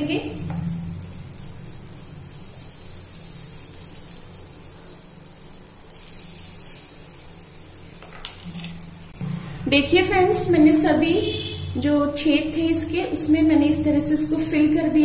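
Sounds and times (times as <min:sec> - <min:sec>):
batter sizzling in a pan: 0:00.0 - 0:15.0
steady low hum: 0:08.6 - 0:15.0.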